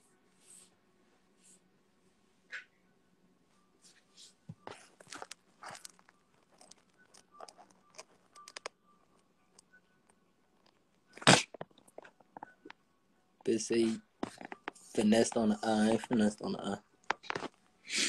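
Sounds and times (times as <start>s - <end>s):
crunching and crackling clicks: 4.7s - 12.8s, 14.2s - 14.8s, 17.0s - 17.6s.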